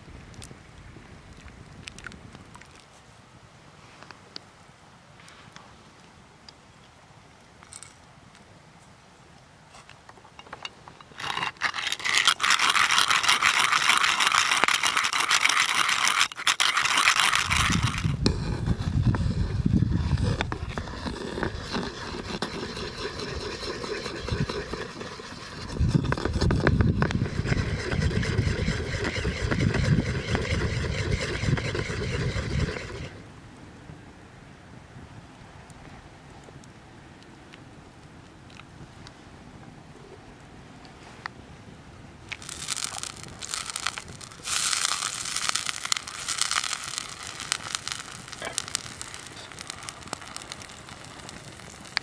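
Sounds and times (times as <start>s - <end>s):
dry rasping scrape: 11.0s - 33.2s, 42.4s - 52.0s
paddle stirring cream in pot: 11.0s - 33.2s, 42.4s - 52.0s.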